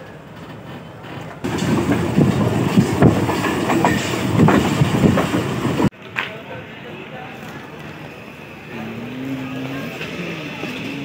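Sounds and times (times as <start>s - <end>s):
train wheels rumbling: 0.0s - 6.0s, 7.2s - 11.0s
wheels clacking over rail joints: 0.0s - 6.4s.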